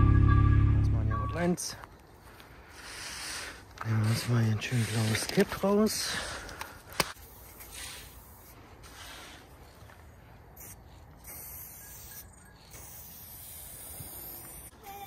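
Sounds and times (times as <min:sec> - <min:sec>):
spray paint can hissing: 0:07.2 - 0:09.4, 0:10.6 - 0:15.0.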